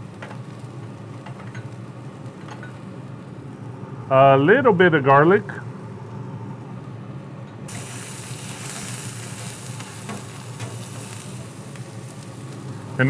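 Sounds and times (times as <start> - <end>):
shallots sizzling in oil: 0.0 - 3.4, 7.7 - 13.0.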